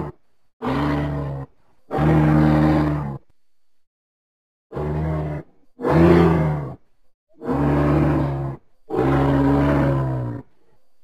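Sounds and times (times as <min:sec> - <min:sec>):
low deep dinosaur calls: 0:00.0 - 0:03.3, 0:04.7 - 0:10.8.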